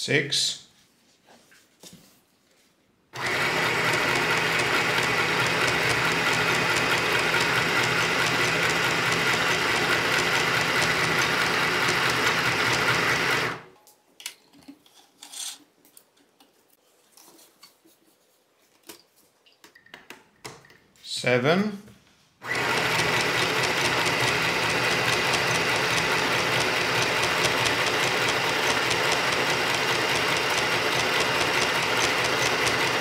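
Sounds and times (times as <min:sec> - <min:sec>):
sewing machine stitching: 0:03.2 - 0:13.7, 0:22.4 - 0:33.0.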